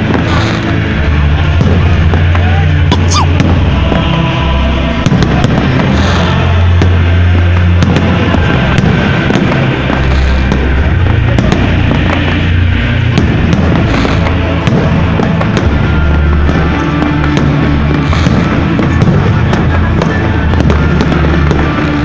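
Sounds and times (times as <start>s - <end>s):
fireworks bursting: 0.0s - 22.0s
loud music with heavy bass: 1.4s - 4.2s.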